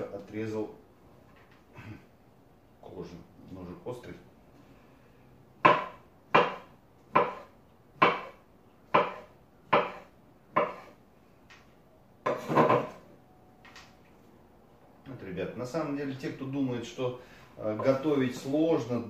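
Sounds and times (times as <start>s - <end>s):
knife chopping on wooden board: 5.6s - 11.0s, 12.2s - 13.0s.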